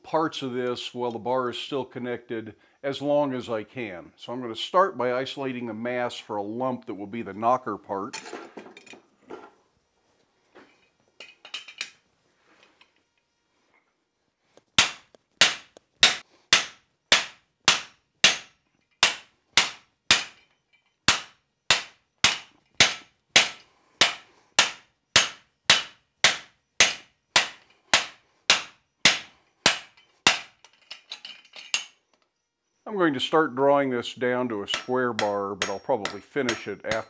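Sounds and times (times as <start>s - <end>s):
hammer striking steel: 14.8s - 20.4s, 21.1s - 30.5s, 34.7s - 37.0s
light metal clinks: 20.4s - 21.0s.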